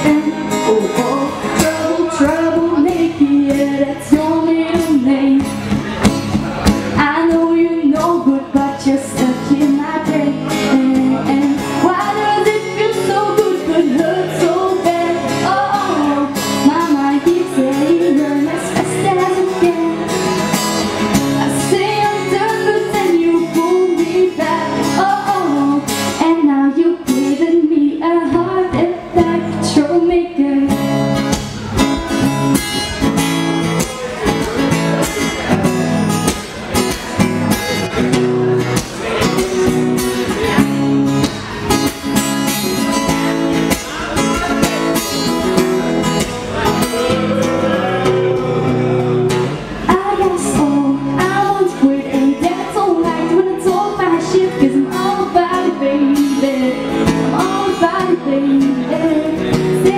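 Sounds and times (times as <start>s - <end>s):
woman singing: 0.0s - 0.7s, 1.5s - 5.7s, 7.0s - 20.3s, 21.4s - 31.1s, 49.8s - 59.9s
acoustic guitar strumming: 0.0s - 59.9s.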